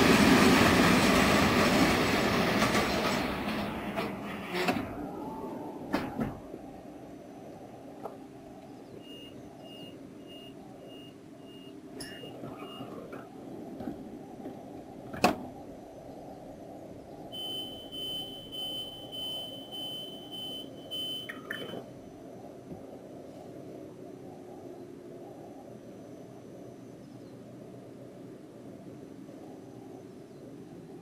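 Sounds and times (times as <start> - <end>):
train low hum: 0.0 - 31.0
long high beeping tone: 17.3 - 21.8
high electronic beeps: 17.4 - 21.8.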